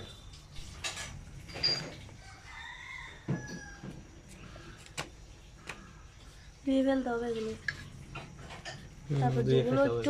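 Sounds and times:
rooster crowing: 2.1 - 4.2.

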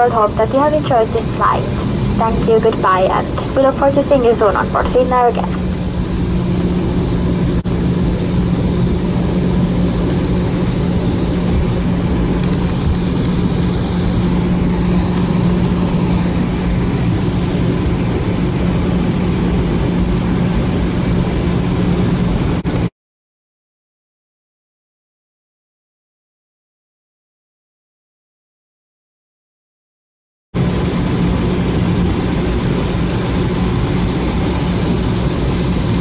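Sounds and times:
jet engines idling: 0.0 - 22.9, 30.6 - 36.0.

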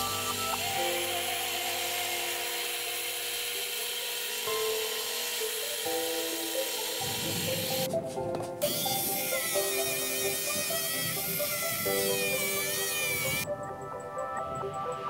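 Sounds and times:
belt grinder hissing: 0.0 - 7.9, 8.6 - 13.4
music with slow sustained notes: 0.0 - 15.0.

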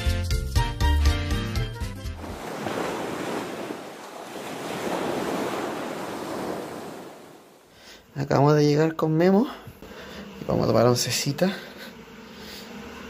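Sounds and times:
ocean waves rushing: 2.0 - 7.8.

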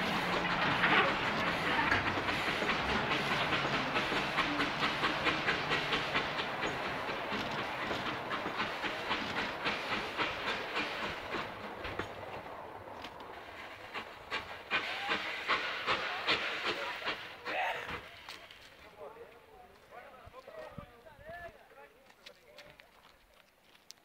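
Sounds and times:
train wheels clacking over rail joints: 0.0 - 18.8.

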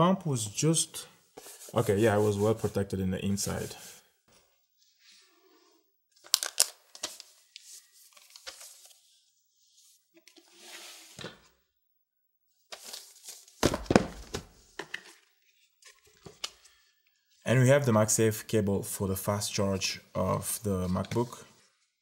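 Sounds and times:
paper wrap rustling: 6.2 - 9.2
laptop and box set down: 13.6 - 15.0.

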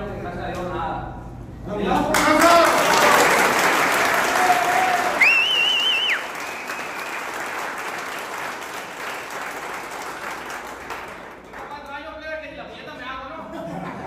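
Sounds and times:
people applauding: 2.1 - 12.1
high wavering whistle: 5.2 - 7.3.

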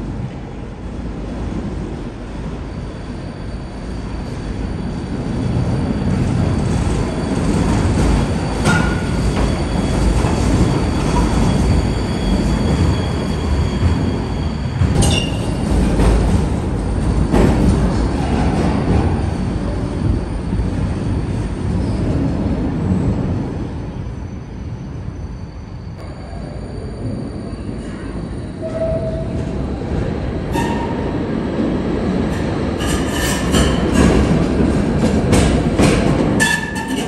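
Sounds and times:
tram wheels rolling on rails: 3.7 - 23.8, 27.8 - 37.0
high wheel squeal: 7.0 - 15.7, 36.4 - 37.0.

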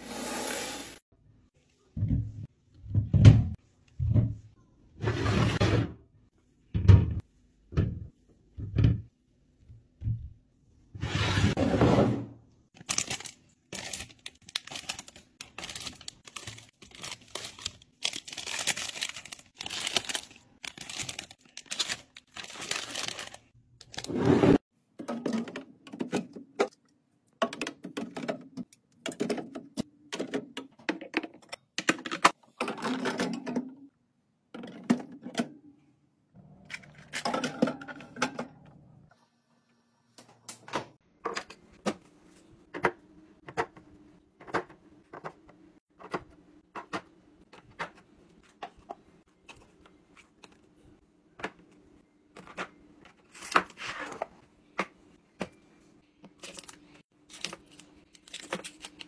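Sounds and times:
foil snack bags crinkling: 12.7 - 24.1
cans and bottles clacking into bins: 27.4 - 33.8, 37.0 - 38.6.

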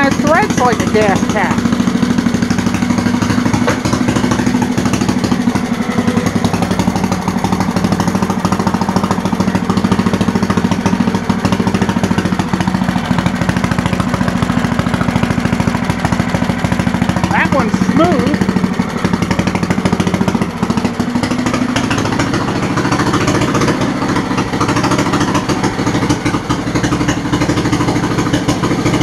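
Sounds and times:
small engine running: 0.0 - 29.0.

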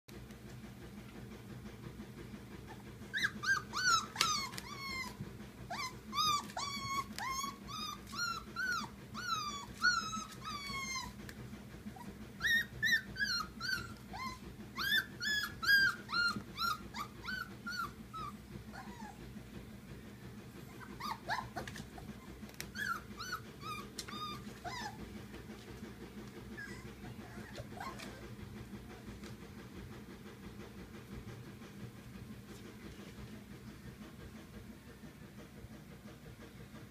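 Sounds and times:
steady low hum: 0.1 - 36.9
puppies yelping and whining: 2.6 - 19.2, 20.7 - 25.0, 26.5 - 28.2.

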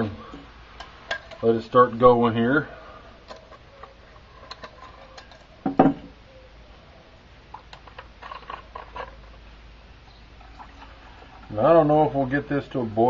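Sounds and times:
wire handles clinking: 3.2 - 6.0
metal mug knocking on wooden table: 5.7 - 6.1.

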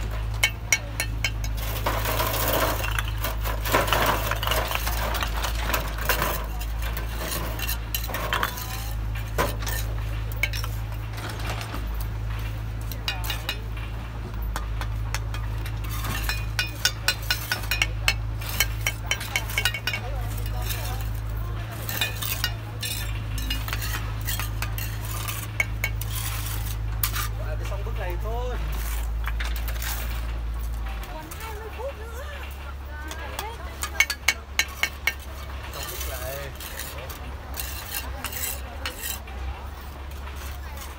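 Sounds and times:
trowel scraping mortar: 0.0 - 11.6, 15.6 - 30.4, 33.3 - 40.9
trowel clinking and tapping bricks: 0.0 - 31.8, 32.4 - 40.9.

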